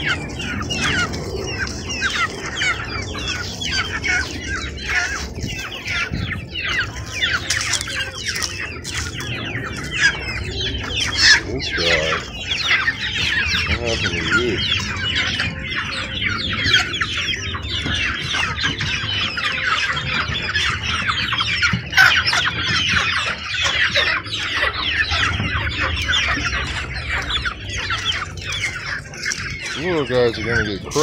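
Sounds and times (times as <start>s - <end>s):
chicks peeping and clucking: 0.0s - 31.0s.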